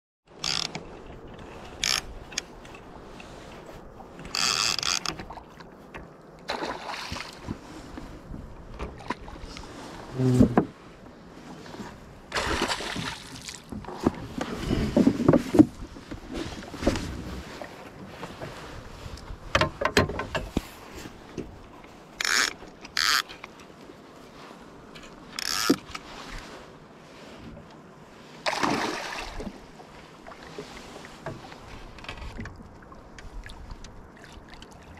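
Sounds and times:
water and wind background: 0.3 - 34.9
fishing reel buzzing: 0.4 - 0.7, 22.2 - 23.2.

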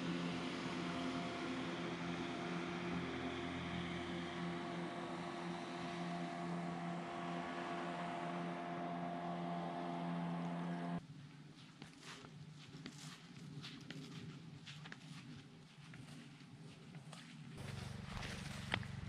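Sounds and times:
motorboat engine droning: 0.0 - 11.0, 17.6 - 19.0.

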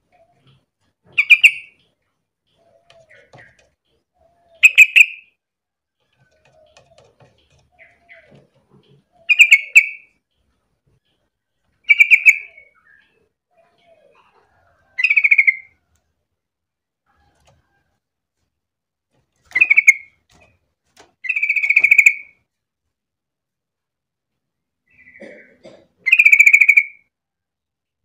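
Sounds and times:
faint low bird calls: 0.0 - 5.4, 6.0 - 16.0, 24.9 - 27.1.

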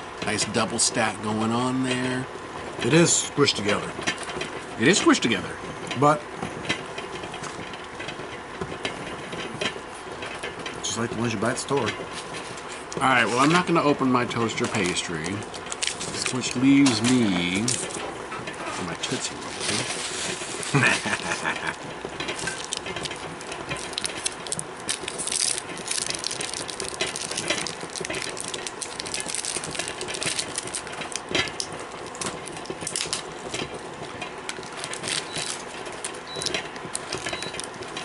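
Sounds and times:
candy wrappers crinkling: 14.4 - 17.9, 18.8 - 21.7, 22.4 - 33.5, 34.5 - 38.0.

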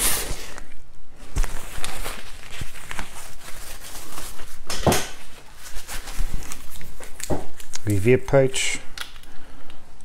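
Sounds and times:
fabric bag rustling: 1.2 - 7.2.

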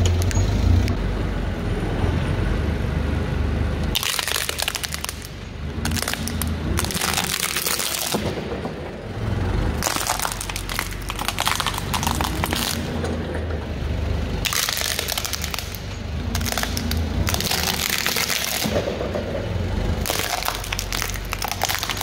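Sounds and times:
plastic cracking and crunching: 3.9 - 8.6, 9.8 - 13.0, 14.4 - 19.1, 20.0 - 22.0
forklift drone: 5.3 - 20.2.

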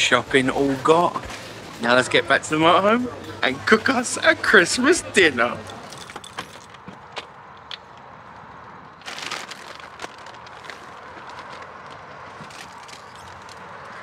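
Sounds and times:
background noise: 0.0 - 14.0
plastic bags rustling: 8.9 - 14.0.

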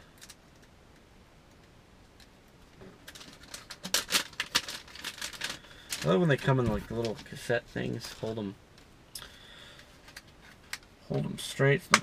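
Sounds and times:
plastic packaging crinkling: 2.8 - 8.5.

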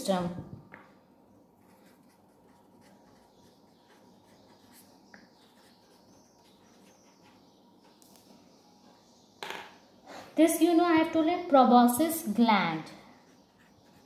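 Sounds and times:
pen scratching on paper: 1.6 - 7.5, 13.3 - 14.0.

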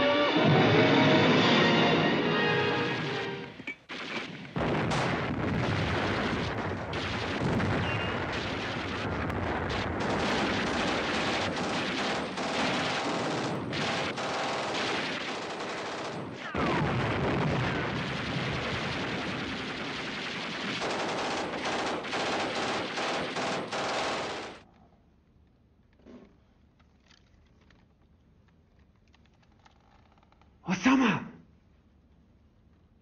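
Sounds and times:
rifle and machine-gun fire: 3.8 - 24.6.

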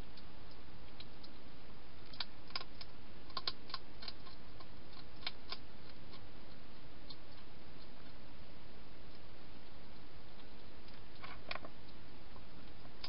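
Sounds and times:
steady hiss: 0.0 - 13.0
hedgehog crunching dry food: 2.0 - 6.3.

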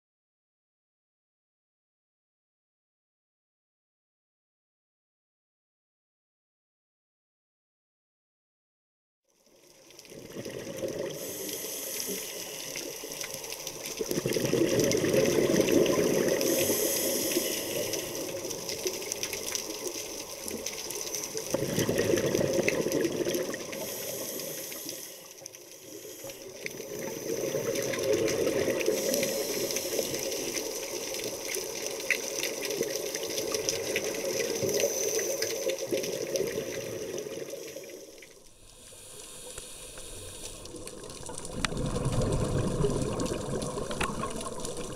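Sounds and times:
exhaled bubbles underwater: 10.0 - 44.9
steady hiss: 11.1 - 13.9, 16.3 - 21.5, 23.6 - 33.3, 34.4 - 36.0, 36.8 - 41.3.

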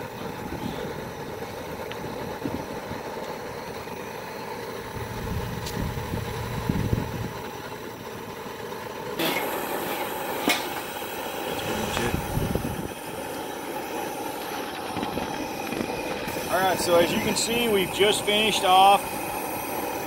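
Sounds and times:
gas wok burner roaring: 0.0 - 20.0
wind rumbling on microphone: 0.2 - 3.0, 5.0 - 7.4, 11.9 - 13.0.

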